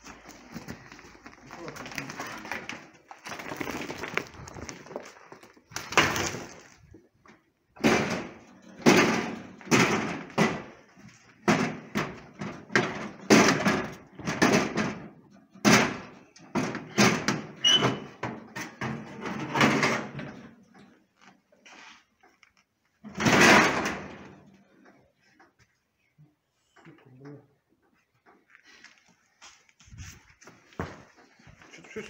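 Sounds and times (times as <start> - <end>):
knocks and clatters: 0.0 - 21.5, 22.3 - 25.6
short squeak: 17.6 - 18.1.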